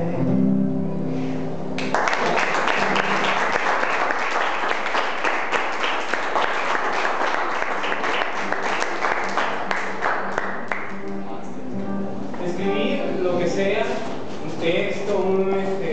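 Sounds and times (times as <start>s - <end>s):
people applauding: 1.8s - 11.0s.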